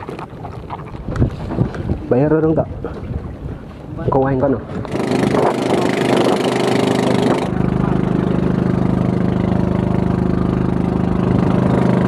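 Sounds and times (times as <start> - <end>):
wind noise on microphone: 0.0 - 7.8, 10.4 - 12.0
boat motor running: 4.6 - 12.0.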